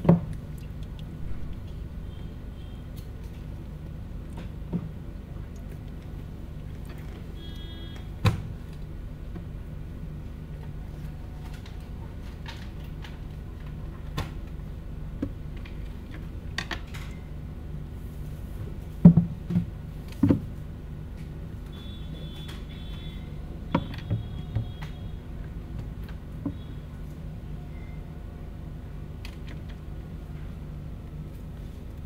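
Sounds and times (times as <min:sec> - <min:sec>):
steady low room hum: 0:00.0 - 0:32.0
knocks and clicks at desks: 0:23.7 - 0:25.0.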